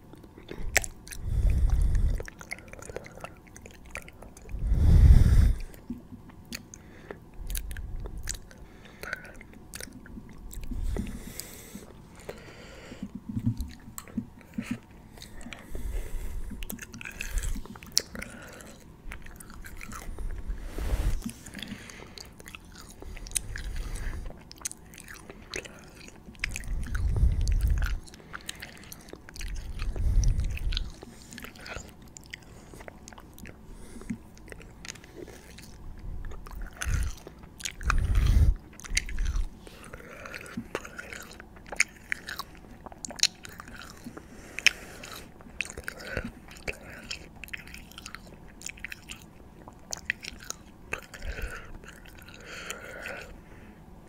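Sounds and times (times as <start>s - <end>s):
chewing: 0.0s - 4.7s, 5.6s - 53.4s
wet mouth clicks and smacks: 0.1s - 4.6s.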